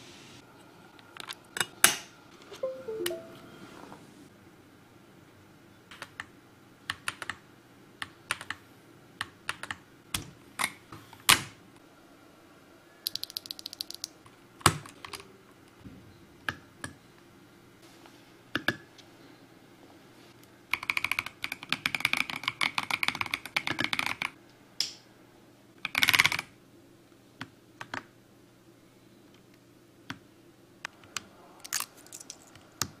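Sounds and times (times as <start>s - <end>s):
mechanical keyboard typing: 6.9s - 7.4s, 20.7s - 24.3s.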